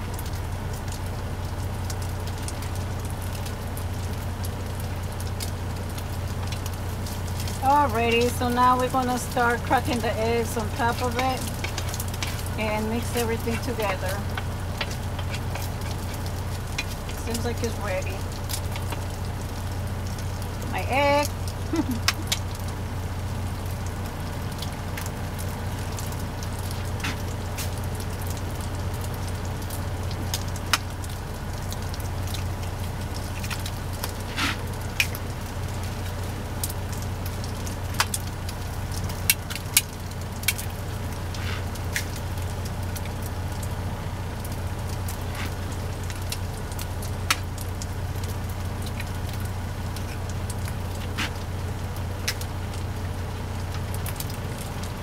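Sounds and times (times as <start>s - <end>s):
low hum: 0.0s - 55.0s
sausage sizzling in a skillet: 0.0s - 55.0s
sharp pops and clicks: 10.8s - 20.7s, 21.3s - 22.8s, 23.6s - 43.8s, 44.4s - 52.9s.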